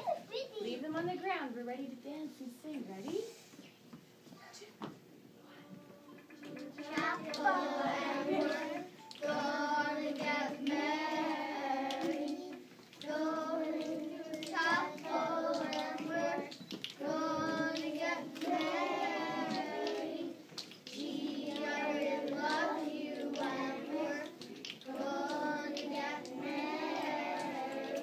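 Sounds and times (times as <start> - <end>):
children singing together: 6.0 - 28.0.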